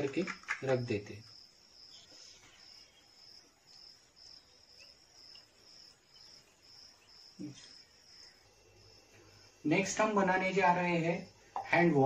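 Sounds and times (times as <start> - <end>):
cricket chirping: 0.0 - 12.0.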